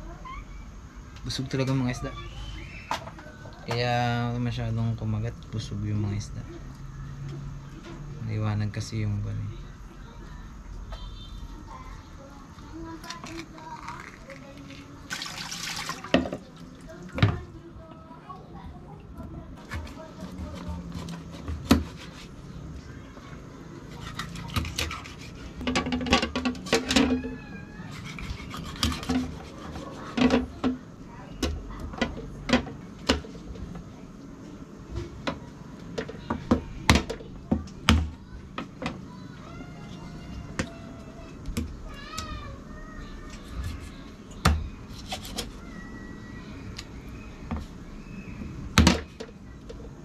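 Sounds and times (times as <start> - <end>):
knife chopping on cutting board: 19.7 - 22.3
knife sawing fish: 23.9 - 25.6, 27.8 - 30.2.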